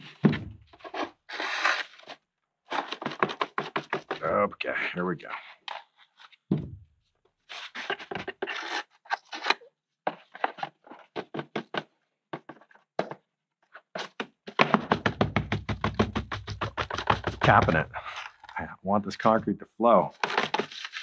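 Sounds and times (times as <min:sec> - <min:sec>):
fast even taps: 0:14.8 - 0:18.0.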